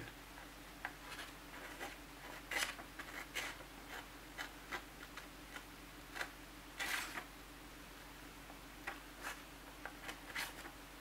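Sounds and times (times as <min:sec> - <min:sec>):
knife blade scraping paper: 0:01.1 - 0:04.0, 0:06.8 - 0:07.2, 0:10.0 - 0:10.7.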